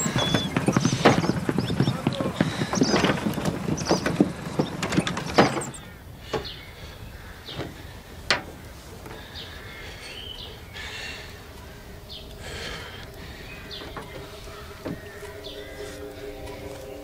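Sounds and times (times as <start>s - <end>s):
horse hooves clopping: 0.0s - 6.5s, 11.3s - 17.0s
knocks: 2.4s - 6.5s.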